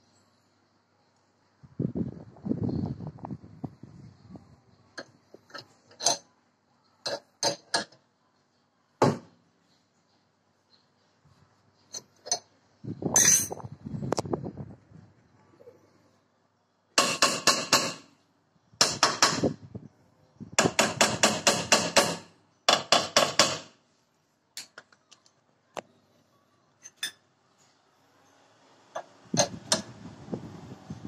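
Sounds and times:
hammer tapping on metal: 0:20.6 - 0:23.7.

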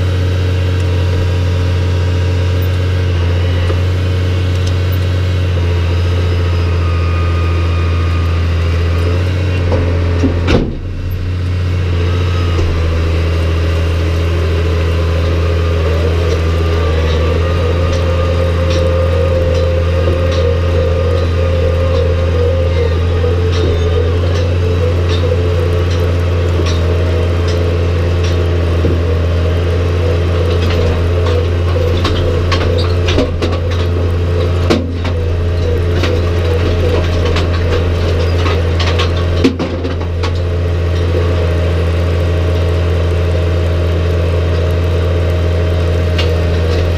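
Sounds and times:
tractor diesel engine running: 0:00.0 - 0:46.9
rattles and knocks from rock picker: 0:09.6 - 0:11.4, 0:15.1 - 0:41.4.

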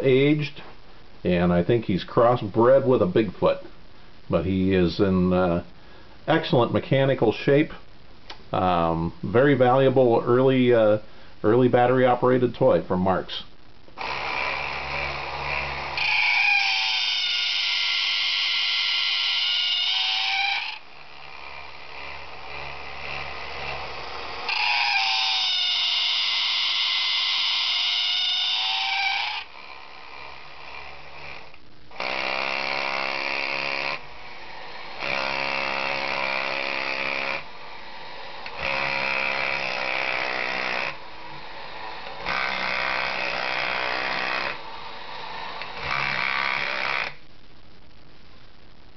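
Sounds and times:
toy giving loud calls: 0:14.0 - 0:21.2, 0:24.4 - 0:29.6
toy motor and gears whirring: 0:14.0 - 0:34.0.

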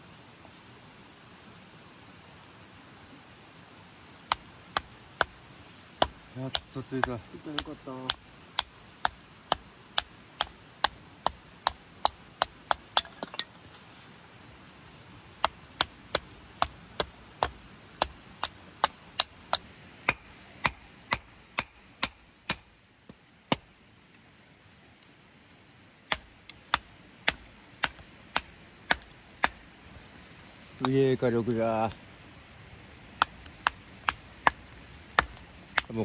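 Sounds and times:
hatchet chopping kindling: 0:06.0 - 0:13.5, 0:15.4 - 0:22.7, 0:26.1 - 0:29.6, 0:33.2 - 0:36.0.

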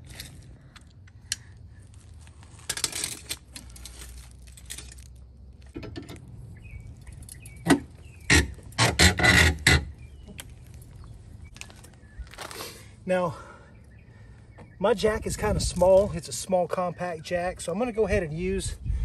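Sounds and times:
metal clinking and rattling: 0:02.6 - 0:06.2, 0:06.8 - 0:09.9.

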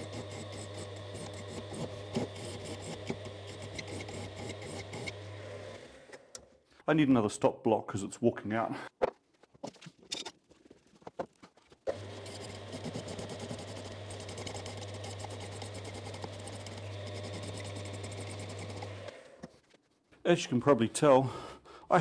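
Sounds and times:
power scraper motor hum: 0:00.0 - 0:06.2, 0:11.9 - 0:19.4
scraper blade rattling on metal: 0:12.2 - 0:19.0.

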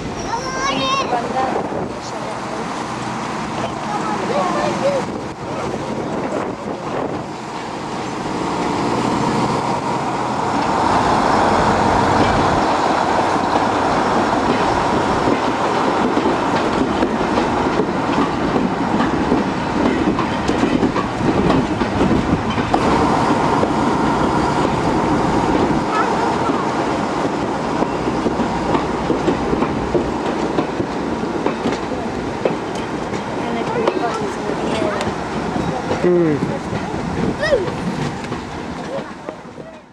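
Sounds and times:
wheels clicking over rail joints: 0:24.6 - 0:39.9.

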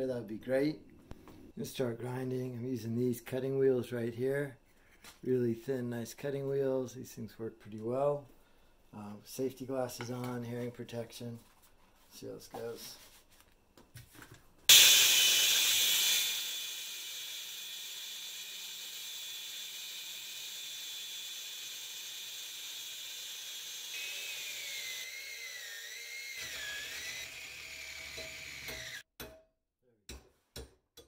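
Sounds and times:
angle grinder cutting metal: 0:14.7 - 0:29.0.

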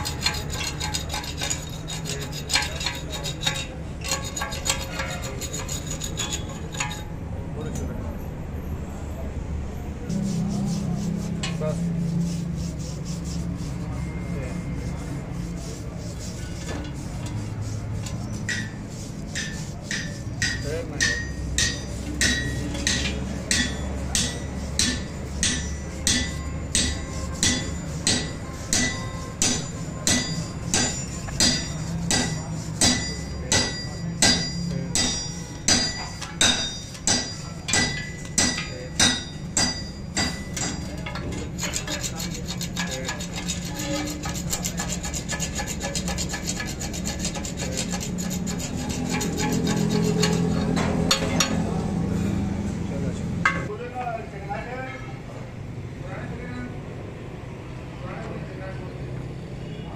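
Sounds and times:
scraping over metal weld: 0:00.0 - 0:07.2, 0:15.0 - 0:51.6
hammer striking metal: 0:18.4 - 0:51.7.

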